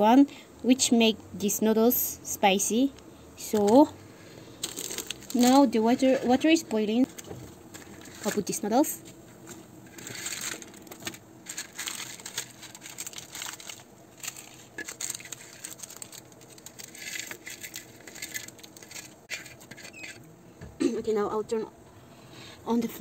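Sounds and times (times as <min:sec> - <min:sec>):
plastic sachets crinkling: 0:04.6 - 0:20.2.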